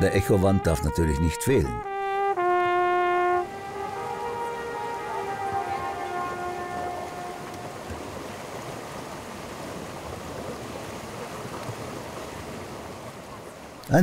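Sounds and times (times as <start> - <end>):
held trumpet note: 0.0 - 8.2
water rushing along boat hull: 1.9 - 14.0.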